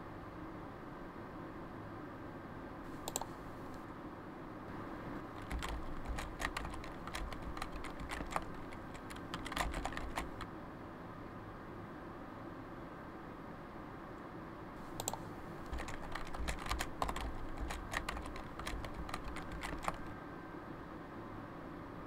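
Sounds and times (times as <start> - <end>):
typing on computer keyboard: 3.0 - 3.4, 5.2 - 10.5, 14.9 - 20.1.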